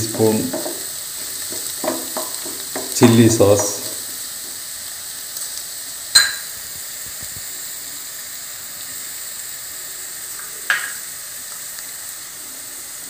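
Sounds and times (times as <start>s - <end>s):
food sizzling in a frying pan: 0.0s - 13.0s
sharp knocks: 1.5s - 3.0s.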